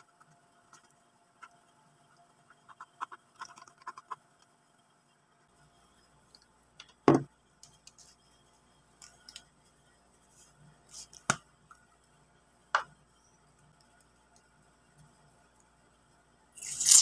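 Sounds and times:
containers knocking on a tabletop: 7.0s - 7.3s.

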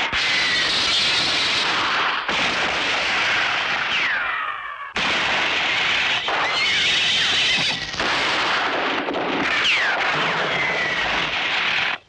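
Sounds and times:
gunshots: 0.0s - 12.0s
ricochet whines: 0.0s - 12.0s.

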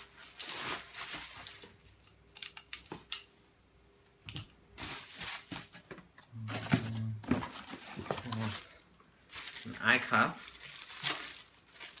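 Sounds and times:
plastic wrapping rustling: 0.0s - 2.1s, 4.8s - 12.0s
plastic packaging clicks: 10.4s - 12.0s.

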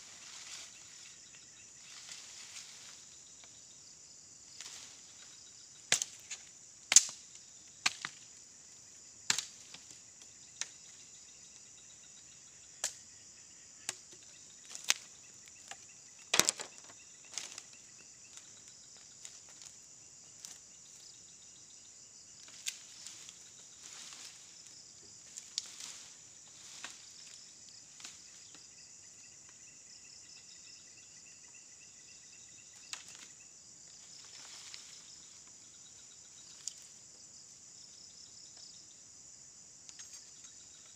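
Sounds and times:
insects chirring: 0.0s - 40.9s
dry bamboo cracking and snapping: 5.9s - 8.3s, 9.3s - 10.0s, 13.9s - 15.1s, 15.7s - 17.8s, 22.4s - 23.3s, 25.3s - 27.0s.

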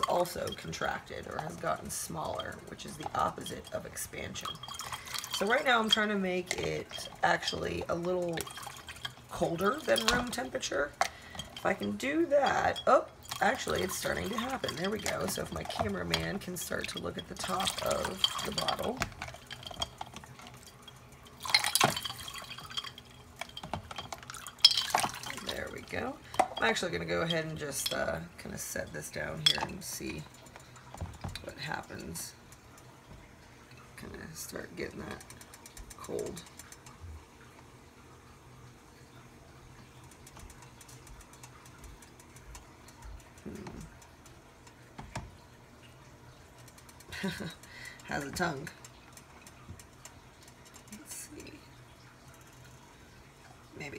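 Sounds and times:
ice water splashing: 0.0s - 20.7s, 21.3s - 28.1s
water dripping: 0.0s - 53.9s.

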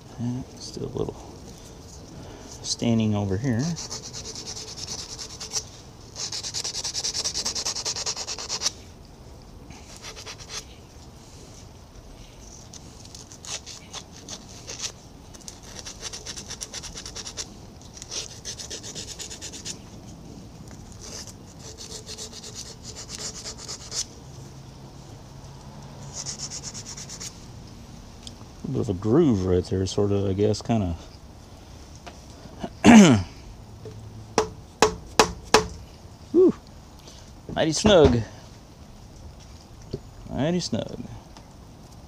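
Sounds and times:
sandpaper rubbing a metal shaft: 3.5s - 8.8s, 9.8s - 10.7s, 13.1s - 19.8s, 21.0s - 24.1s, 26.1s - 27.4s.

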